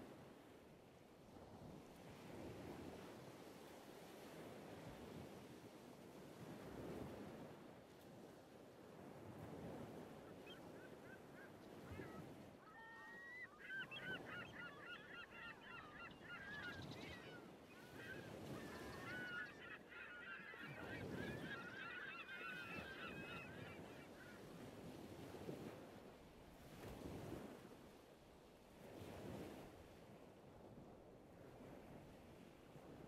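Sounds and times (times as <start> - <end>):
flock of birds calling: 10.2 - 24.4.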